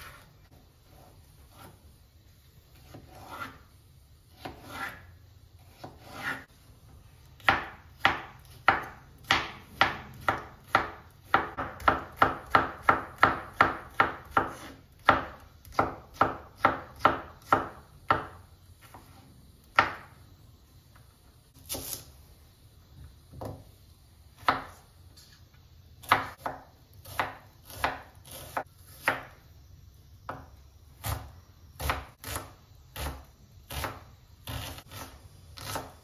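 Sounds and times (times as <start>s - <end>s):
knife chopping on cutting board: 0.0s - 1.8s, 2.7s - 3.6s, 4.3s - 6.5s, 7.3s - 20.2s, 24.4s - 24.9s, 26.0s - 29.4s, 30.3s - 36.0s.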